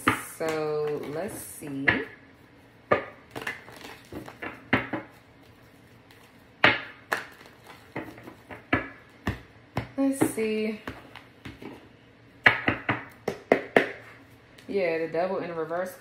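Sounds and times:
cards being shuffled: 0:03.3 - 0:06.5, 0:07.1 - 0:08.5.

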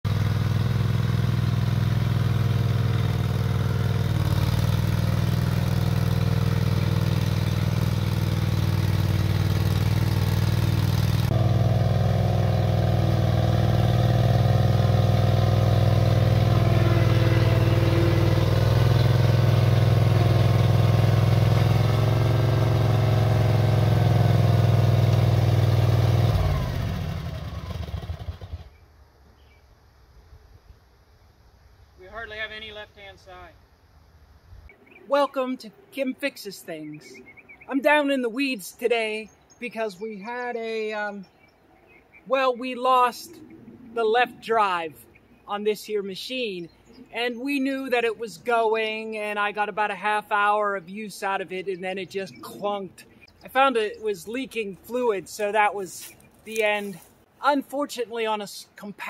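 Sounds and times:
engine running: 0:00.1 - 0:28.7.

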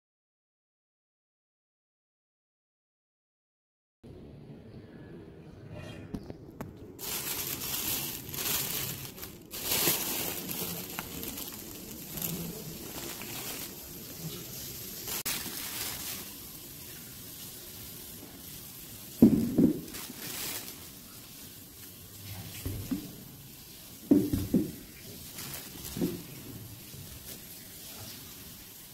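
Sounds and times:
plastic bags rustling: 0:06.8 - 0:28.4.

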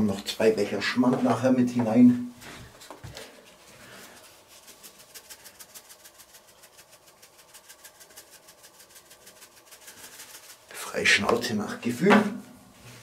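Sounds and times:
seasoning shaker rattling: 0:03.2 - 0:11.5.

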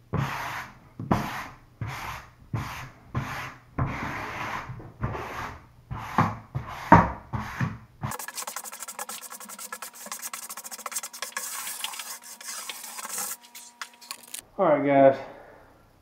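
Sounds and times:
hand-sanding wood: 0:05.2 - 0:14.4.

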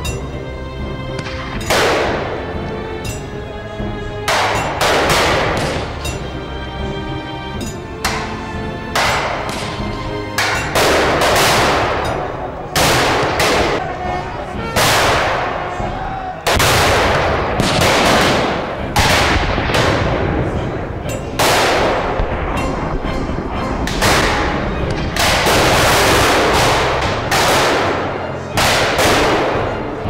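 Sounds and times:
low rumble of battle noise: 0:00.0 - 0:30.0
rifle shots echoing: 0:01.2 - 0:02.5, 0:04.4 - 0:05.9, 0:10.6 - 0:13.8, 0:16.5 - 0:20.5, 0:21.4 - 0:22.6, 0:23.9 - 0:30.0.

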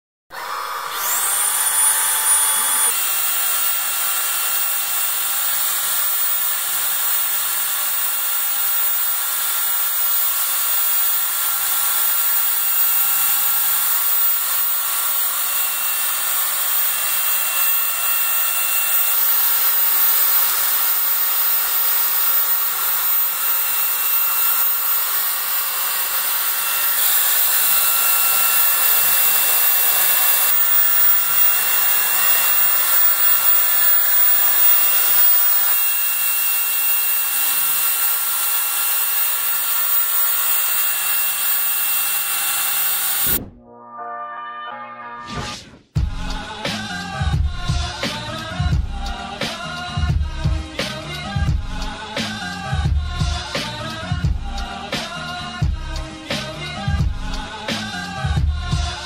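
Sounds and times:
vacuum motor whine: 0:00.3 - 0:43.4.

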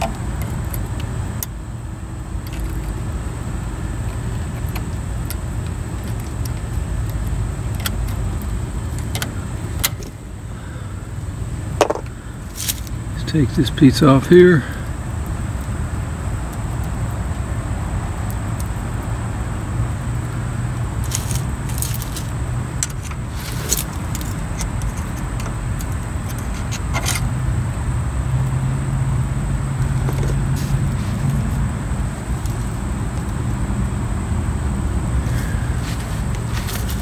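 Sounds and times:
steady low hum: 0:00.0 - 0:37.0
screwdriver metal clicks and scrapes: 0:04.0 - 0:10.2, 0:21.0 - 0:27.3.

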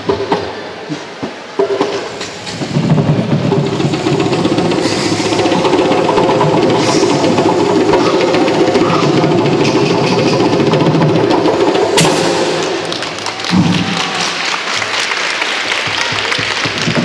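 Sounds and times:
hand drums playing: 0:02.1 - 0:14.4
crowd applauding: 0:03.2 - 0:17.0
sharp knock: 0:11.8 - 0:14.2.

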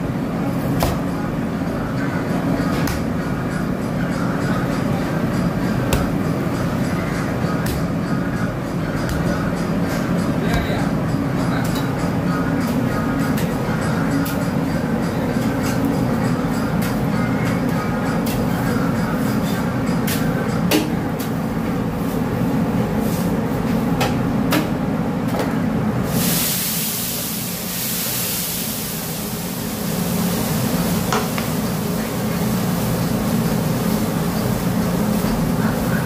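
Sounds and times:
steady low hum: 0:00.0 - 0:26.1
steam hissing off griddle: 0:26.0 - 0:36.0.

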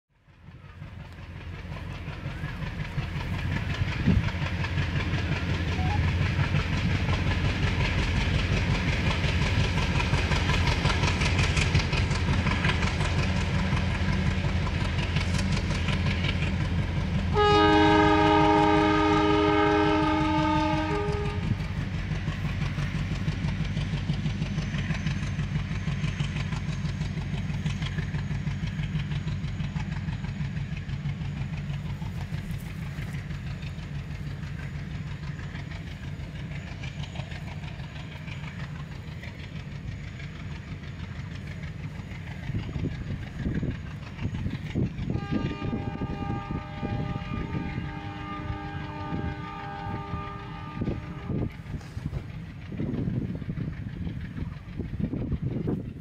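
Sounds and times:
diesel locomotive chugging: 0:00.1 - 0:56.0
locomotive horn: 0:05.7 - 0:06.2, 0:17.3 - 0:21.6, 0:45.1 - 0:52.0.

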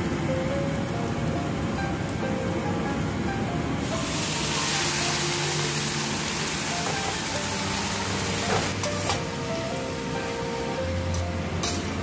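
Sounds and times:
background music: 0:00.8 - 0:12.0
vegetables sizzling in hot oil: 0:03.0 - 0:12.0.

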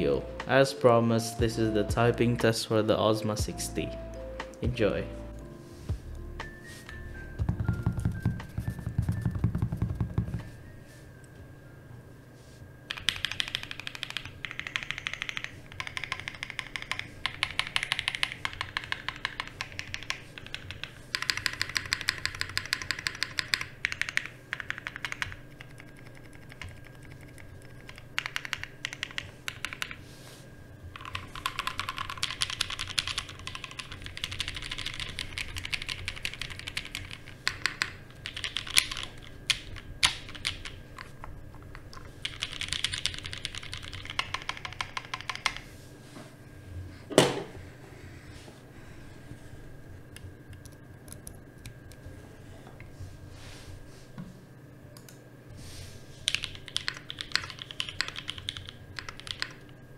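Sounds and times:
mechanical keyboard typing: 0:12.9 - 0:30.0, 0:31.0 - 0:41.1, 0:41.7 - 0:45.6, 0:56.3 - 0:59.7.

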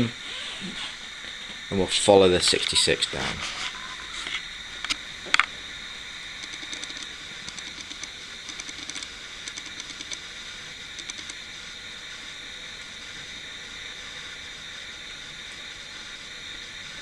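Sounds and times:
model train motor hum: 0:05.8 - 0:17.0
sharp clicks: 0:06.4 - 0:10.2, 0:11.0 - 0:11.4.

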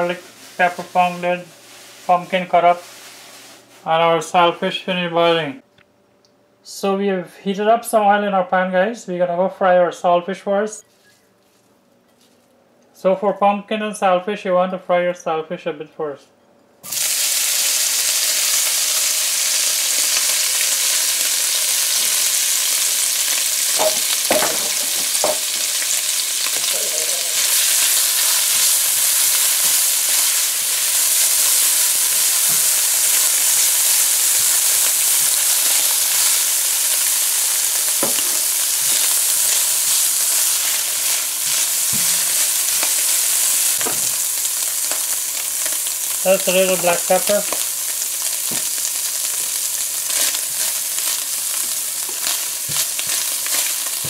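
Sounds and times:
fish sizzling in hot oil: 0:16.8 - 0:54.0.

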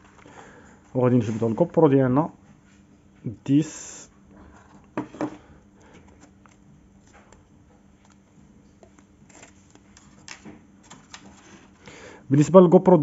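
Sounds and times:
camera packaging handling: 0:08.9 - 0:11.8.

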